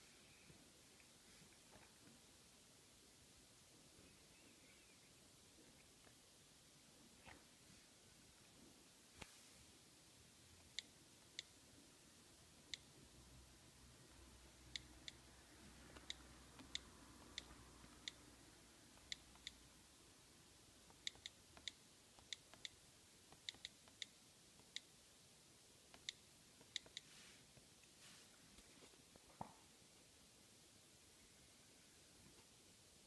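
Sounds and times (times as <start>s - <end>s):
on-screen keyboard clicks: 15.9s - 18.2s, 19.0s - 19.6s, 20.9s - 24.9s, 25.9s - 27.1s.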